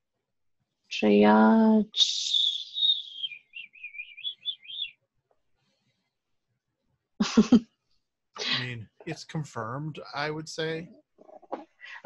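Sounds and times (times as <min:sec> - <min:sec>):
high whistle-like chirping: 0:02.1 - 0:05.0
short vocal sound: 0:08.6 - 0:10.8.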